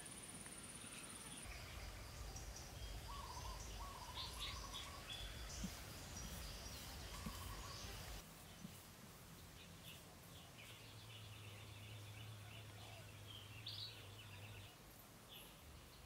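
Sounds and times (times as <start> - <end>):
birds chirping: 0.0 - 8.8.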